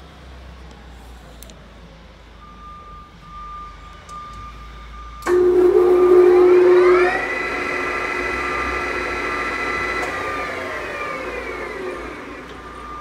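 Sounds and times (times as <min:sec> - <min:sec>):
lathe spindle gear whine: 0:03.2 - 0:13.0.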